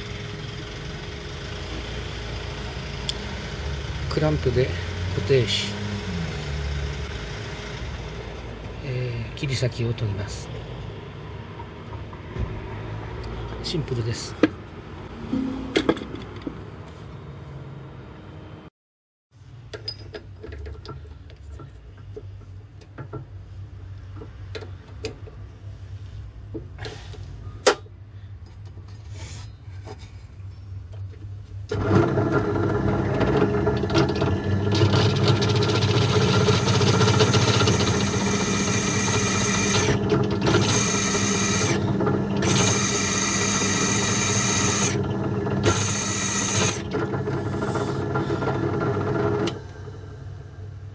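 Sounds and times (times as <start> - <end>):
drill press motor hum: 0.0 - 8.8, 31.7 - 50.9
drill bit cutting whine: 31.7 - 49.6.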